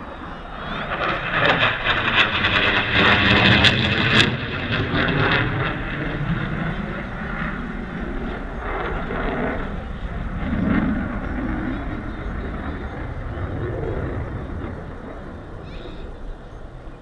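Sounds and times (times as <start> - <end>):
aircraft roaring overhead: 0.0 - 17.0.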